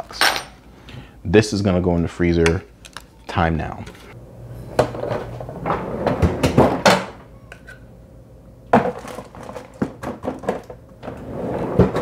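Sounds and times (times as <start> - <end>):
freezer drawer knocks and clatters: 8.8 - 10.7.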